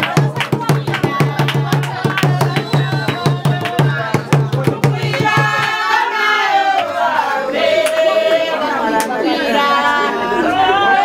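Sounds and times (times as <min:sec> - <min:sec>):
fast drum beat: 0:00.0 - 0:05.7
voices singing: 0:00.0 - 0:11.0.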